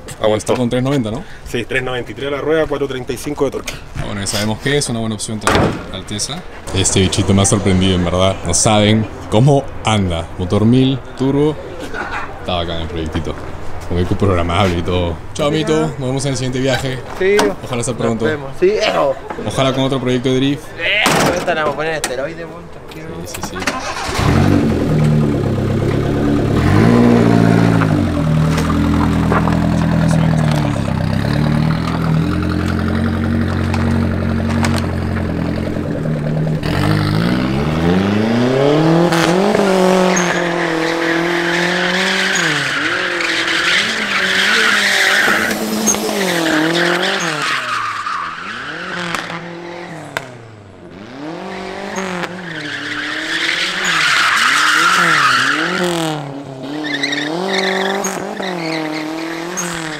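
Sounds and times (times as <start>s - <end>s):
car engine revving: 5.4s - 10.6s, 23.5s - 59.9s
tyres squealing: 22.7s - 50.2s, 51.2s - 59.9s.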